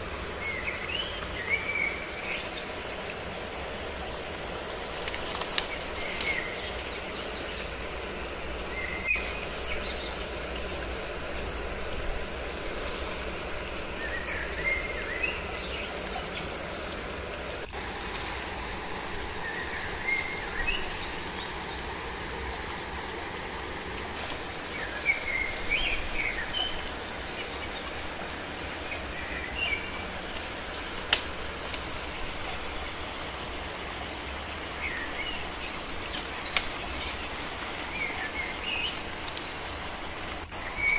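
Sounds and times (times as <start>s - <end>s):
dry brush snapping: 5.0s - 6.5s, 30.3s - 32.0s, 36.0s - 37.0s.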